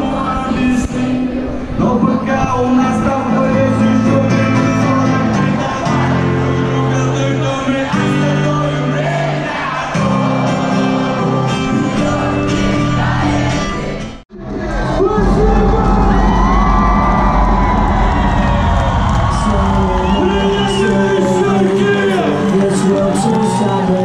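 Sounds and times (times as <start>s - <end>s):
man singing: 0.0s - 16.4s, 19.2s - 24.0s
bass line: 10.0s - 23.7s
synth chords: 13.8s - 23.0s.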